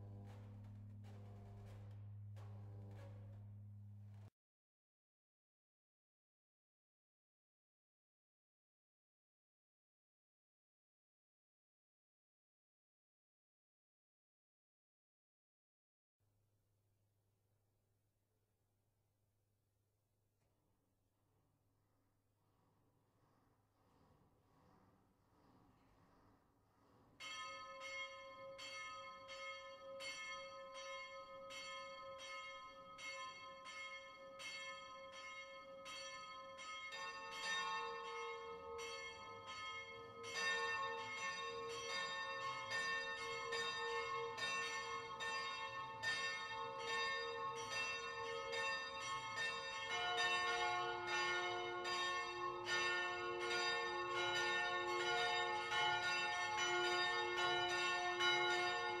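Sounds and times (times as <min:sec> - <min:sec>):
swinging church bells ringing: 0:27.2 - 0:59.0.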